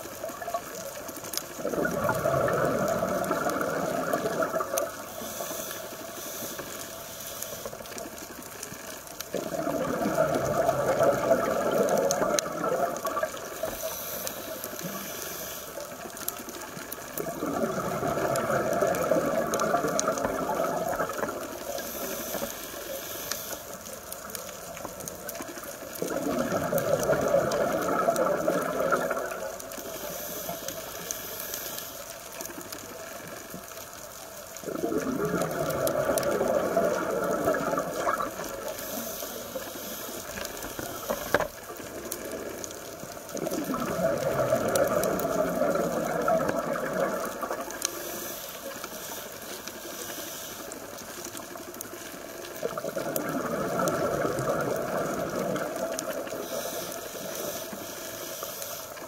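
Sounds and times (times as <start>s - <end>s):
bubbles rushing and gurgling: 0.0s - 5.3s, 7.9s - 15.1s, 15.8s - 22.8s, 23.9s - 30.0s, 34.4s - 49.9s, 50.6s - 57.8s
diver breathing through regulator: 5.0s - 7.8s, 13.6s - 15.9s, 21.6s - 23.8s, 29.8s - 32.1s, 38.6s - 41.4s, 47.8s - 51.0s, 56.3s - 59.0s.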